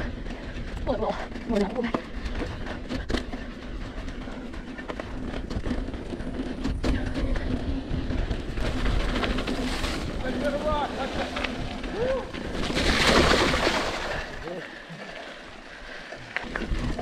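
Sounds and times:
bike clattering over bumps: 0.0 - 14.4
bike tyre rumble on dirt: 0.0 - 17.0.

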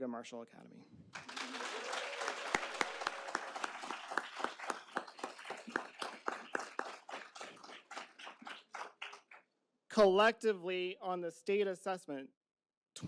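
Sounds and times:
audience applause: 1.1 - 9.4.

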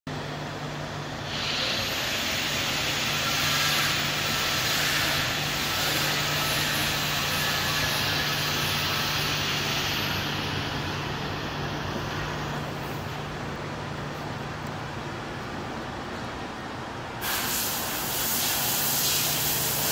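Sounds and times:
loud airy hiss: 1.2 - 13.2, 17.1 - 19.9.

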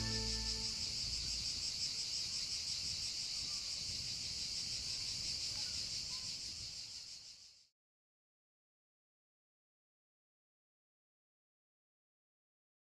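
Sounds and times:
faint low rumble: 0.0 - 1.2
cicadas buzzing: 0.0 - 7.6.

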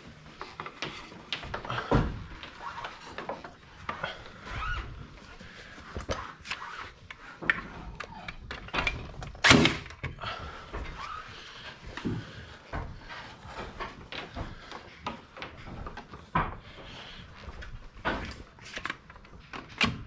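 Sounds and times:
cable rubbing against wood: 0.0 - 8.5.

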